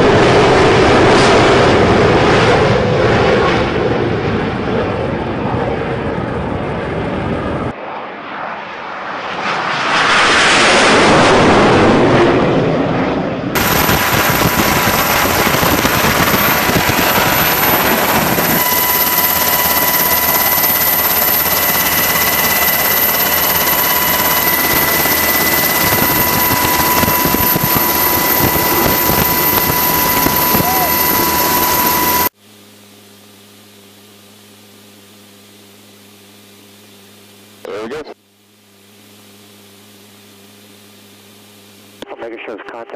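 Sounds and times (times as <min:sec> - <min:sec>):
jet engine rush: 0:00.0 - 0:32.3
jet drone with high whine: 0:00.0 - 0:42.9.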